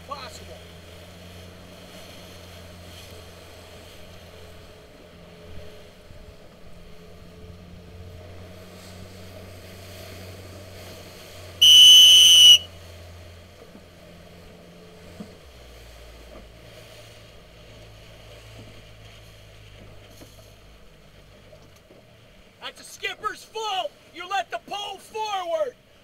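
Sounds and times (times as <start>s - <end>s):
motorboat engine humming: 0.0s - 26.0s
loud whistle blast: 11.6s - 12.7s.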